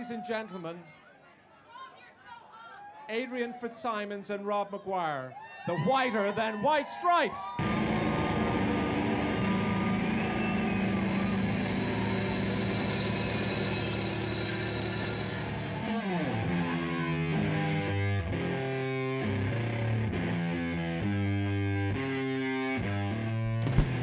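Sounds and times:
distorted electric guitar: 7.6 - 24.0.

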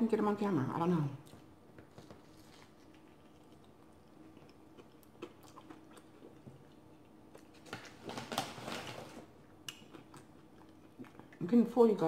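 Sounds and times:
quiet chewing with mouth clicks: 1.2 - 7.8, 9.4 - 11.4
plastic chip bag crackling: 1.8 - 3.6, 7.5 - 9.3.

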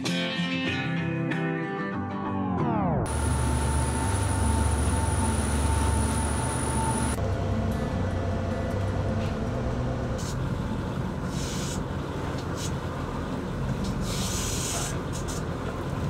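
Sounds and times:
water noise: 3.1 - 8.6
boat engine droning: 3.1 - 16.0
wind: 3.1 - 16.0
hiss bursts: 11.3 - 11.8, 13.9 - 15.4.

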